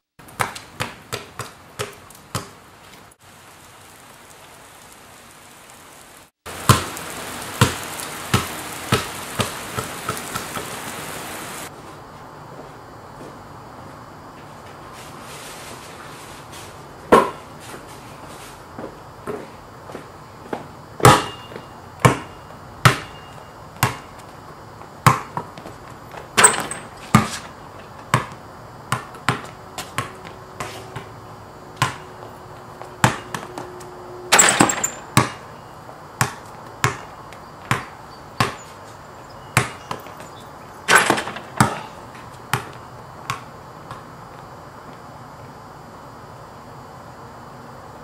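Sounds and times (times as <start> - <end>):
heavy rain hissing: 2.6 - 11.7.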